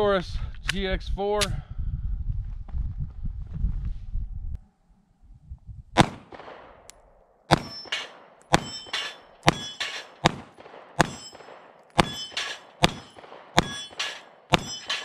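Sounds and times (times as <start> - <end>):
pistol shots: 6.0 - 6.9, 7.5 - 15.0
steel plates clanging: 7.6 - 10.3, 11.0 - 15.0.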